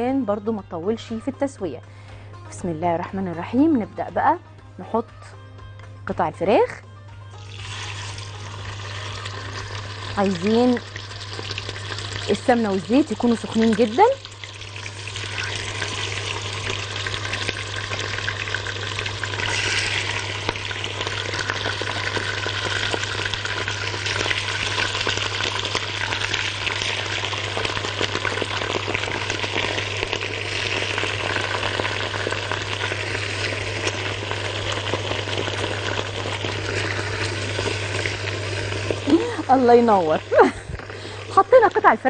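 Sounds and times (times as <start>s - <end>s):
chicken sizzling in hot oil: 7.3s - 42.0s.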